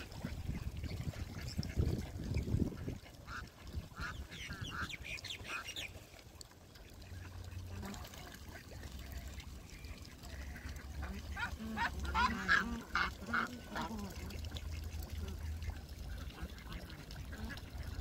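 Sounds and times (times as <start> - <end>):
ducks quacking: 2.6 - 6.0, 10.0 - 18.0.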